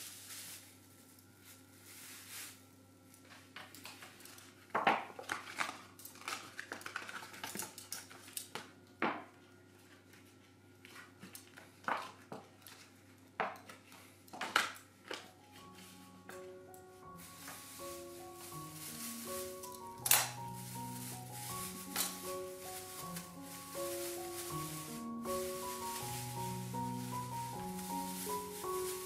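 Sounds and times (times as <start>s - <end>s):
paper rustling and crinkling: 3.9s - 8.6s, 17.1s - 29.0s.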